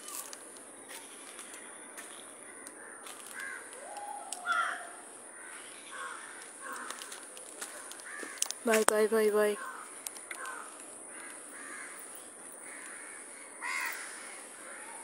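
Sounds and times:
crows cawing: 0.9s - 8.7s, 9.5s - 15.0s.

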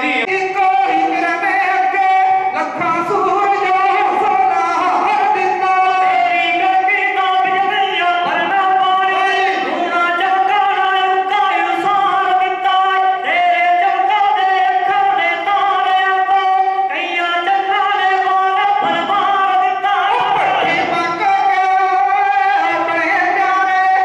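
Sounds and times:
devotional singing: 0.0s - 24.0s.

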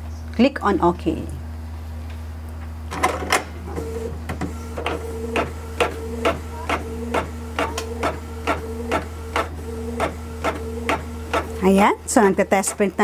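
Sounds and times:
printer motor whine: 3.0s - 13.0s.

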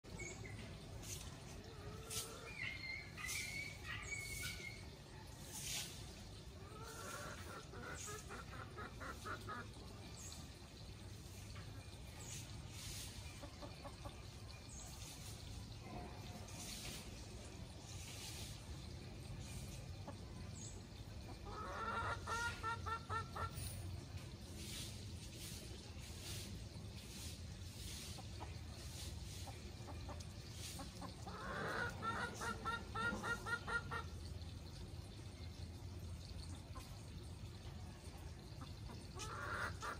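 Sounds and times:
chicken clucking: 6.5s - 10.4s, 13.0s - 15.3s, 21.3s - 23.9s, 27.9s - 34.2s, 38.6s - 39.9s.

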